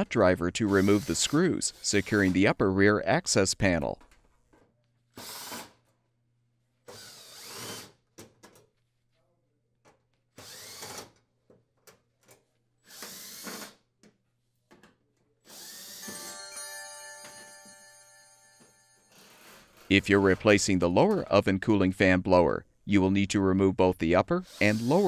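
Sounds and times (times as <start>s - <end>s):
cordless drill whining: 0.7s - 2.4s, 6.9s - 7.9s, 10.4s - 11.1s, 12.8s - 13.8s, 15.5s - 16.4s.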